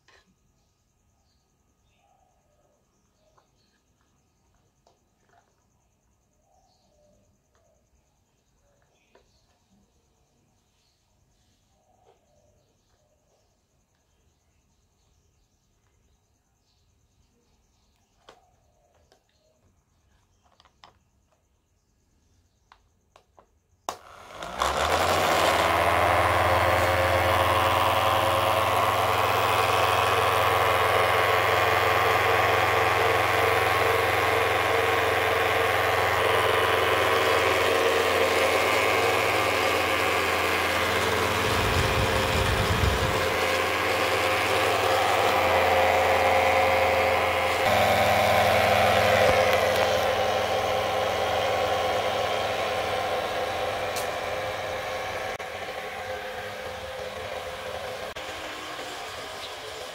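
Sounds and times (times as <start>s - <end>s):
toy motors whirring: 23.9s - 59.9s.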